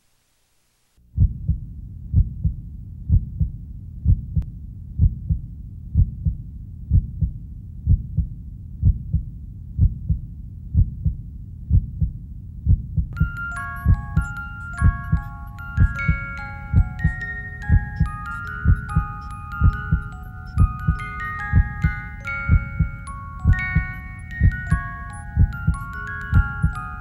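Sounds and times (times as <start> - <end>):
heartbeat thumps: 1.2 - 26.8
bell-like mallet music: 13.2 - 27.0.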